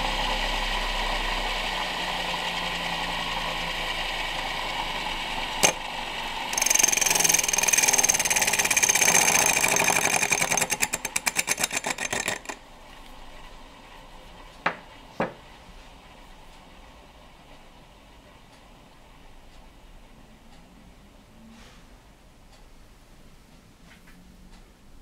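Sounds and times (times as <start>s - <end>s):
lathe motor running: 0.0s - 12.9s
turning tool scraping spinning wood: 5.6s - 12.6s.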